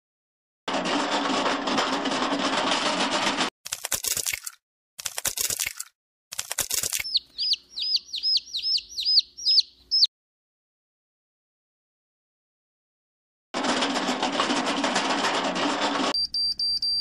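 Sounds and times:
eggshell cracking: 0:03.7 - 0:08.8
chick peeping: 0:07.0 - 0:10.1.

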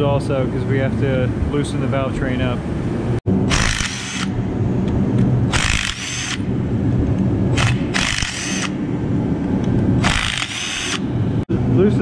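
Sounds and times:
power driver whining: 0:03.4 - 0:11.4.

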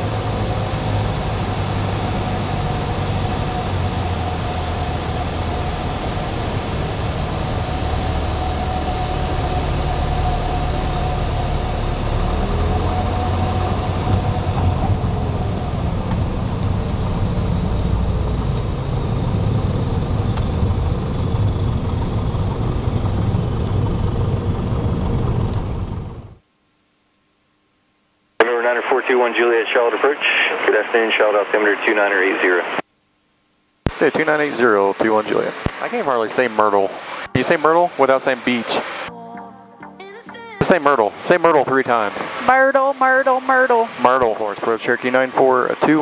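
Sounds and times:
airplane engine and propeller: 0:00.0 - 0:26.4, 0:34.0 - 0:39.1, 0:40.7 - 0:46.0.

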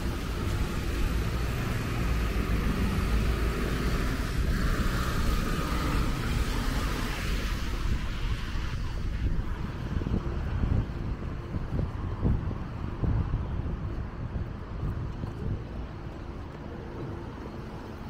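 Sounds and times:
traffic rumbling past: 0:00.0 - 0:13.6.

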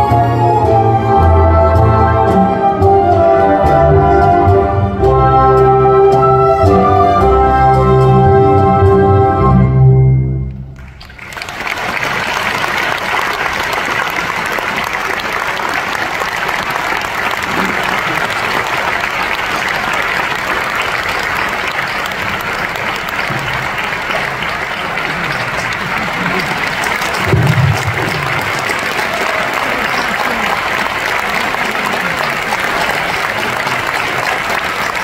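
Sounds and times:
audience applauding: 0:10.8 - 0:35.0.

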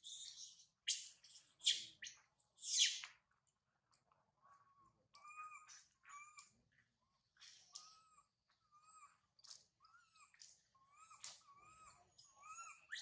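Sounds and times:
young monkey whimpering calls: 0:10.9 - 0:13.0.

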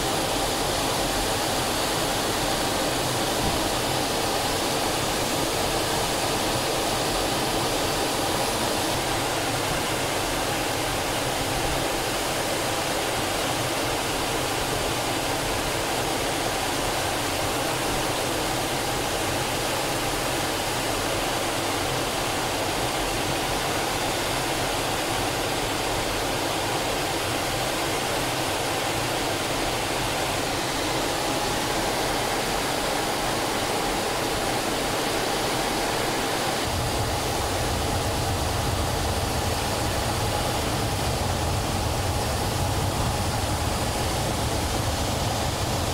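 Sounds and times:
jet cockpit rush with whine: 0:29.4 - 0:45.9.

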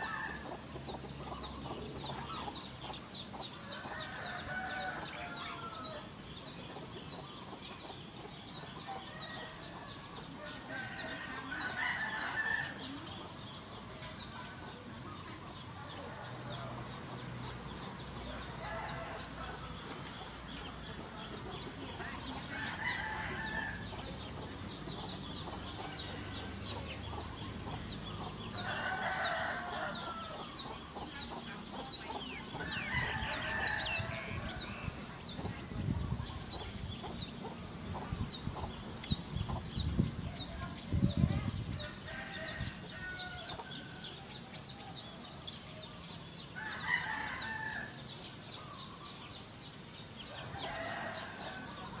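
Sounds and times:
roosters crowing: 0:00.0 - 0:06.3, 0:08.8 - 0:13.5, 0:17.7 - 0:35.7, 0:41.6 - 0:45.3, 0:46.4 - 0:48.9, 0:50.2 - 0:52.0
hens clucking: 0:00.0 - 0:41.5.

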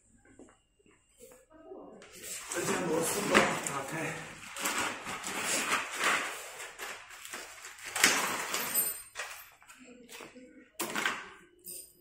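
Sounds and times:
plastic bag rustling: 0:02.2 - 0:09.7.

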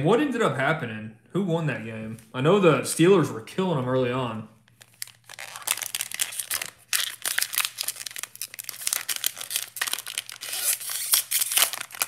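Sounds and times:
plastic wrapper crackling and tearing: 0:04.7 - 0:12.0.

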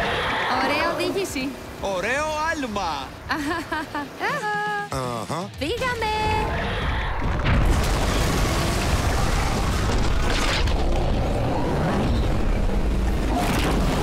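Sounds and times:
heavy rumble and booms: 0:07.2 - 0:14.0.

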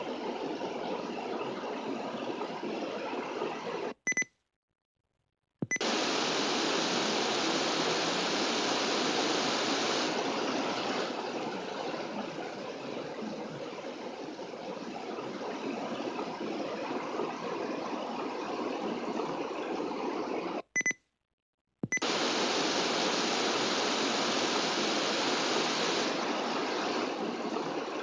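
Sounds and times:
short beep: 0:04.1 - 0:04.3
static hiss: 0:05.8 - 0:11.6, 0:22.0 - 0:28.0.

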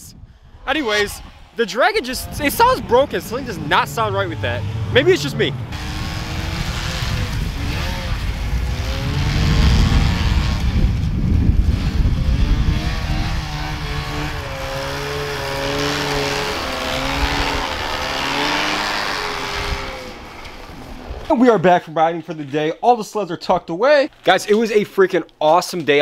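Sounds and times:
snowmobile engine revving: 0:00.7 - 0:20.5.

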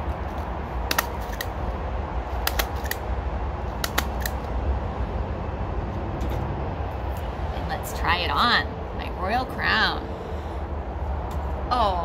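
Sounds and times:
stapler clicks: 0:02.4 - 0:03.0, 0:03.8 - 0:04.4.

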